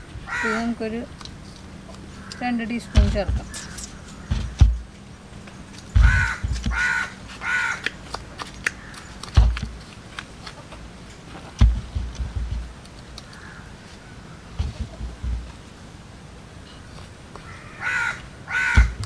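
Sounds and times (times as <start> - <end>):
crow cawing: 0.3 - 0.7, 2.1 - 4.6, 6.0 - 7.9, 8.7 - 9.1, 13.3 - 14.4, 17.4 - 19.0
loud low thumps: 2.9 - 4.9, 5.9 - 6.9, 11.6 - 12.8, 14.5 - 15.5, 18.7 - 19.0.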